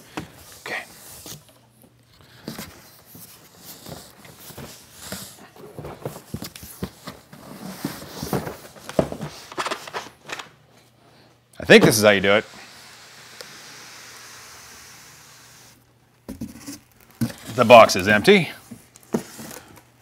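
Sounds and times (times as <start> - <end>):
cardboard scraping and rustling: 2.4 - 10.0.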